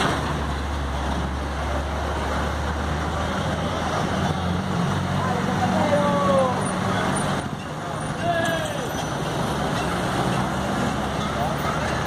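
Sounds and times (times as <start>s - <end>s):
street traffic: 0.0s - 12.0s.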